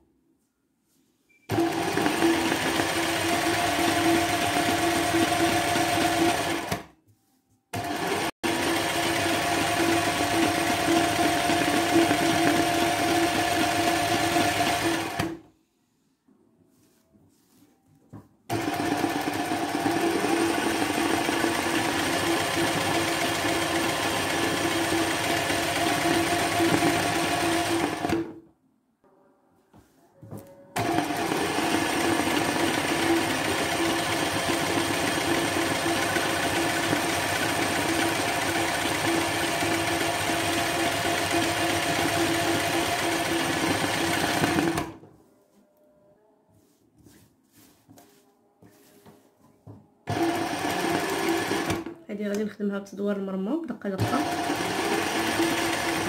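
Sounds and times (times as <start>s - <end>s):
sewing machine running: 1.5s - 6.8s, 7.8s - 15.4s, 18.5s - 28.4s, 30.8s - 45.0s, 50.1s - 51.9s, 54.0s - 56.0s.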